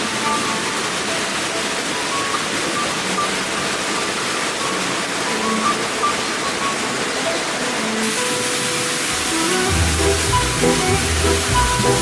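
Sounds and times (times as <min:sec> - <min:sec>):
falling water rushing: 0:00.0 - 0:12.0
soft musical notes: 0:05.2 - 0:12.0.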